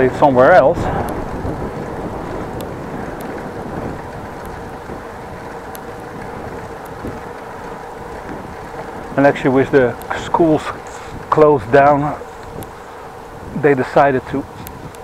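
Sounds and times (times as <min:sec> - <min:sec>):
bicycle rolling noise: 0:00.0 - 0:15.0
wind on microphone: 0:00.0 - 0:15.0
faint high ticks: 0:02.5 - 0:09.1, 0:09.7 - 0:10.4, 0:12.3 - 0:13.1, 0:14.5 - 0:15.0.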